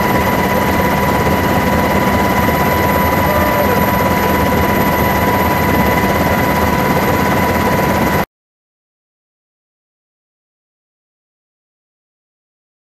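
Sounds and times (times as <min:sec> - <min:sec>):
helicopter rotor rumble: 0:00.0 - 0:08.3
helicopter turbine whine: 0:00.0 - 0:08.3.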